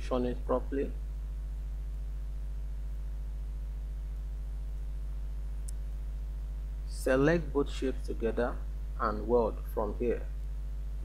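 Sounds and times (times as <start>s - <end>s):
low electrical hum: 0.0s - 11.0s
faint click: 5.6s - 5.8s.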